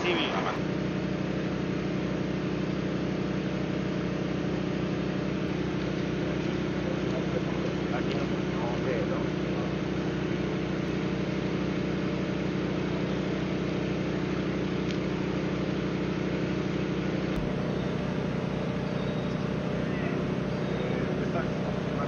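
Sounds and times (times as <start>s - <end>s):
mechanical hum: 0.0s - 22.0s
constant hiss: 17.0s - 22.0s.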